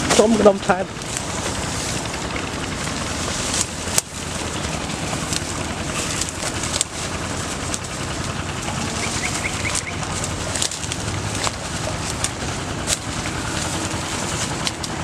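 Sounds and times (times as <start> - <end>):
crackling stems and brush: 0.0 - 15.0
steady rumbling background noise: 0.0 - 15.0
footsteps through tall grass: 1.0 - 15.0
bird chirps: 9.0 - 10.1.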